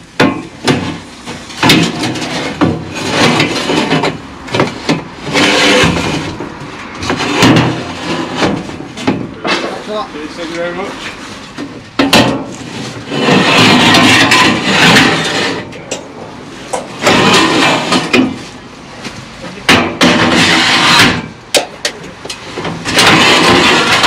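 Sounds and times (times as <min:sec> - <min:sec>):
metal scraping and clattering: 0:00.2 - 0:21.6, 0:22.3 - 0:24.0
sharp metal knocks: 0:12.0 - 0:12.5, 0:19.7 - 0:24.0.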